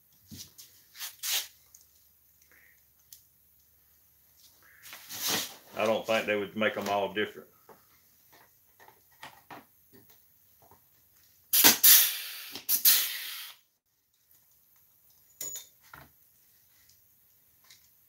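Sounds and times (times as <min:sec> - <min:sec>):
pneumatic air drill running: 0:11.5 - 0:13.6.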